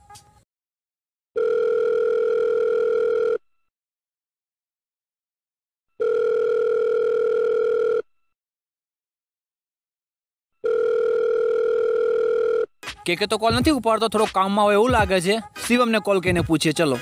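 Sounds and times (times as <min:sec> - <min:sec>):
phone ringback tone: 0:01.4 - 0:03.5, 0:06.0 - 0:08.2, 0:10.6 - 0:12.7.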